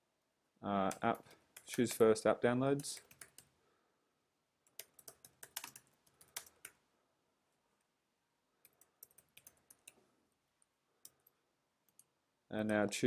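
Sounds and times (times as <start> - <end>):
typing on computer keyboard: 2.8 - 3.5, 4.7 - 6.8, 8.6 - 10.0.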